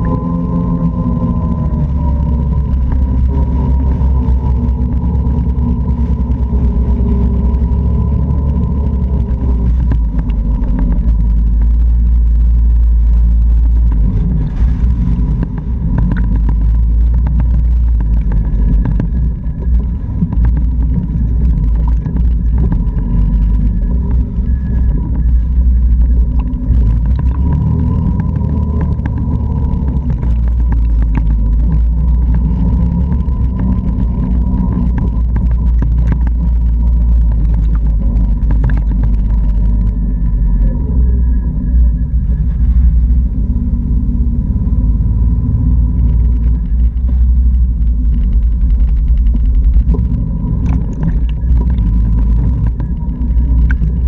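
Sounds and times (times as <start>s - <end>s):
atv engine running: 0.0s - 54.0s
tyres on gravel: 45.8s - 54.0s.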